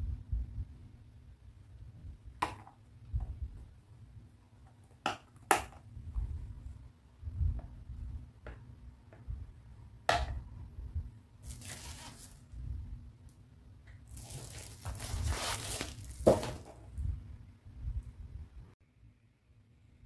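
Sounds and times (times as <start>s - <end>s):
plastic scraping and rustling: 11.4s - 12.5s, 14.1s - 17.0s.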